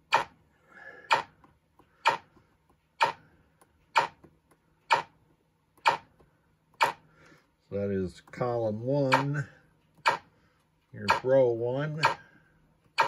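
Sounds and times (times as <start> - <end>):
sharp ringing clicks: 0.0 - 0.4, 4.0 - 4.3, 9.0 - 10.3, 11.0 - 12.3.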